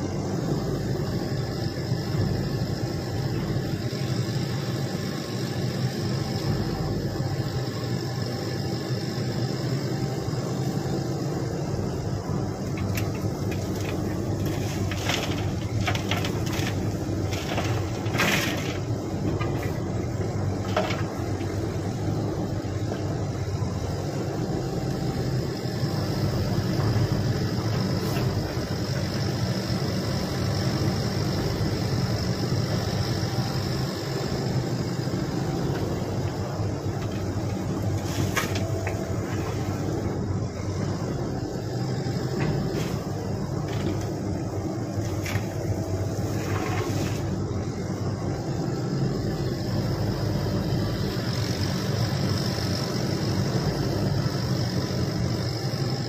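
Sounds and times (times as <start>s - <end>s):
excavator diesel engine running: 0.0s - 56.0s
soil and rock dropping into truck bed: 12.7s - 19.9s, 20.5s - 21.6s, 37.0s - 39.7s, 42.4s - 44.2s.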